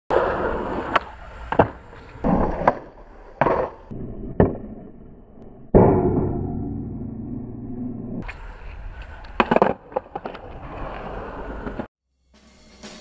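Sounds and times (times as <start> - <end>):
skateboard wheels rolling: 0.1 - 5.1, 8.0 - 11.9.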